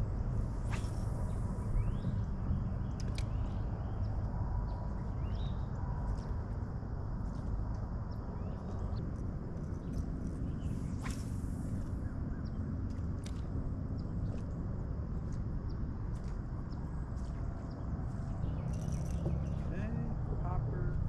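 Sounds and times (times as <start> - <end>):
low rumble: 0.0 - 21.0
birds chirping: 16.6 - 21.0.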